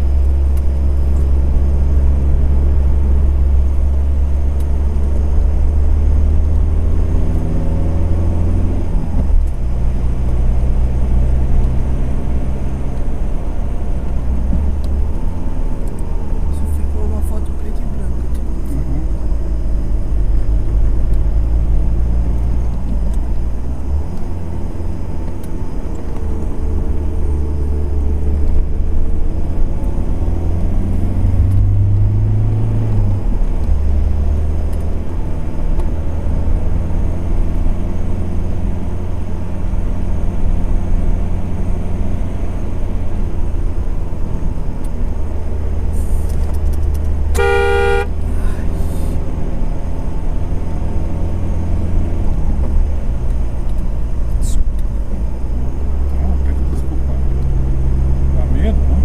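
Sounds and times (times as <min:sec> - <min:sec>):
car engine and road rumble: 0:00.0 - 0:59.0
car horn toot: 0:47.3 - 0:48.6.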